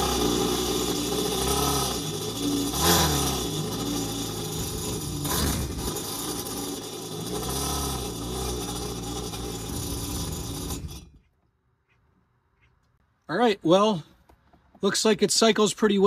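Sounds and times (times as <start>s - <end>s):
electric actuator running: 0.0s - 11.1s.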